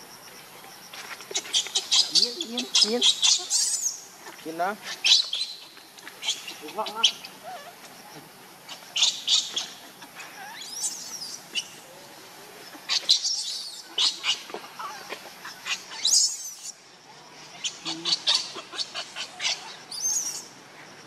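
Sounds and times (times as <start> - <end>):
baby monkey squealing: 1.5 - 4.0.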